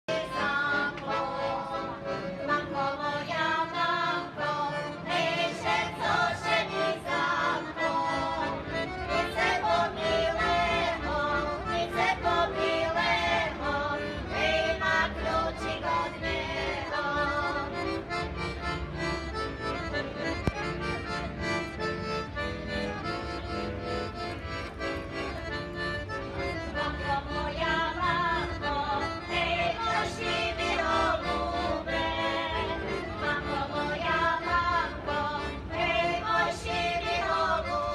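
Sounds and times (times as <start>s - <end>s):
accordion: 0.0s - 37.9s
women singing folk song: 0.1s - 18.1s, 26.6s - 37.9s.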